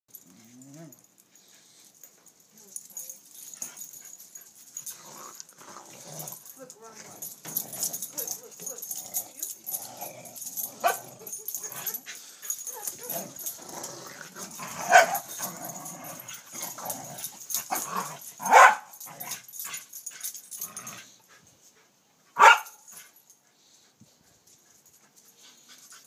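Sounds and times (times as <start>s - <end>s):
quiet dog noises: 0.1s - 13.6s.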